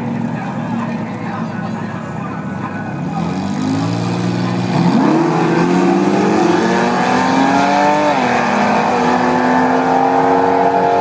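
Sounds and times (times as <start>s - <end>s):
car engine accelerating hard: 2.6s - 11.0s.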